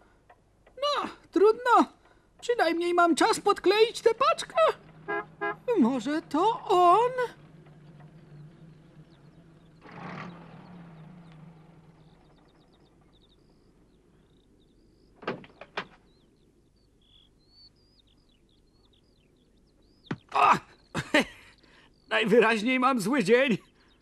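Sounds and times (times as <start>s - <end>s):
birds chirping: 0.0s - 24.0s
van engine running low: 3.9s - 15.2s
van door clicks: 15.2s - 16.1s.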